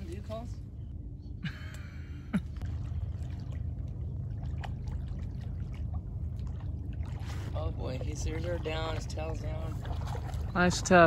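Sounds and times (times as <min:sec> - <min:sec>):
steady low rumble: 0:00.0 - 0:11.0
water sloshing and splashing: 0:02.4 - 0:11.0.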